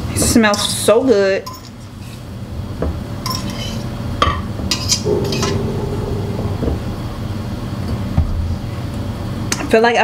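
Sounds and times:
utensils clinking against dishes: 0.4s - 1.9s
low hum: 5.0s - 8.2s.

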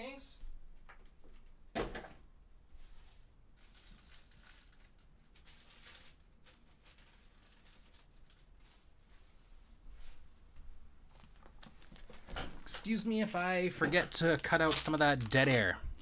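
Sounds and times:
plastic packaging rustling: 3.0s - 9.4s, 11.1s - 16.0s.

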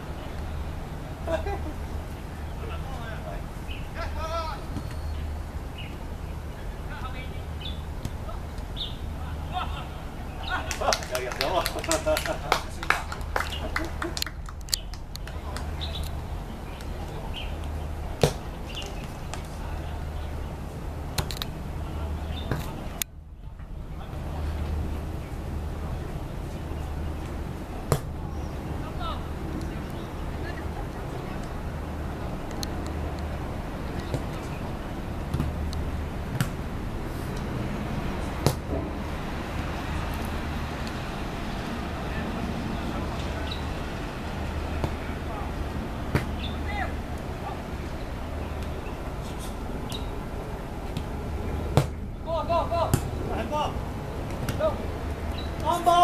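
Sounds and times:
steady low rumble: 11.9s - 55.7s.

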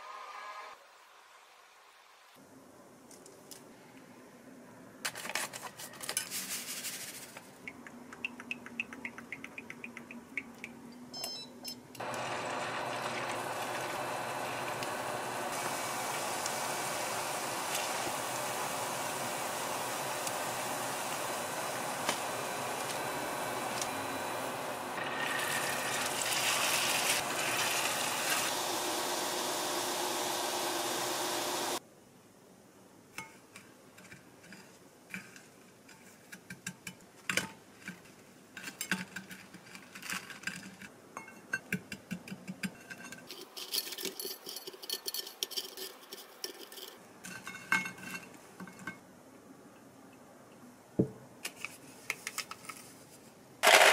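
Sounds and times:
batter sizzling in hot oil: 12.0s - 31.8s.

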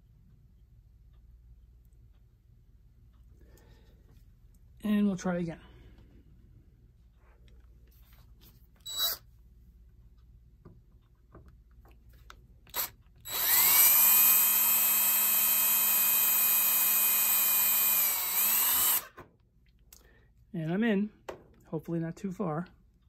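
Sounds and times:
cordless drill whining: 8.8s - 9.3s, 12.7s - 19.2s.

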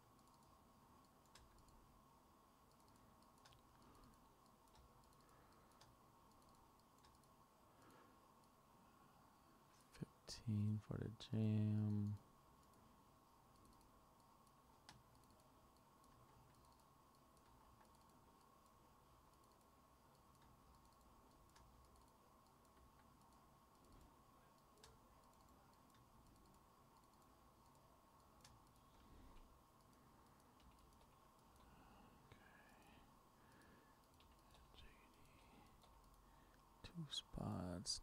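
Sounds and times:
computer clicks: 0.0s - 1.8s, 2.6s - 7.4s, 13.5s - 36.7s
faint steady hum: 0.0s - 38.0s.

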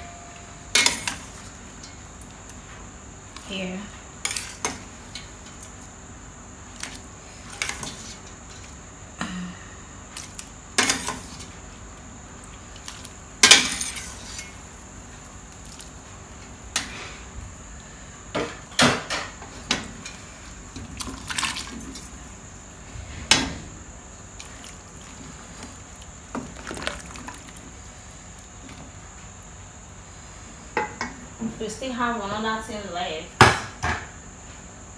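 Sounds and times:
wet sloshing soup: 20.0s - 23.0s, 24.2s - 29.4s.

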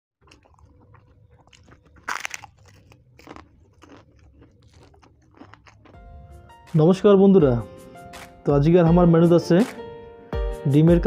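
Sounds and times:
chewing: 0.2s - 6.0s
crisp wafer crunching: 0.2s - 6.0s.

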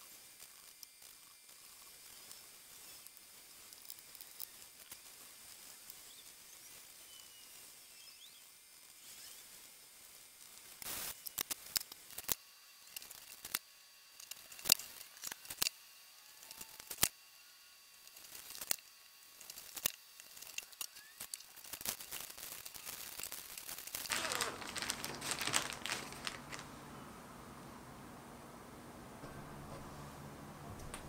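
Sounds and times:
cling film crinkling: 10.6s - 13.6s, 16.4s - 17.1s, 18.0s - 27.0s
plastic bag rustling: 19.4s - 27.0s.

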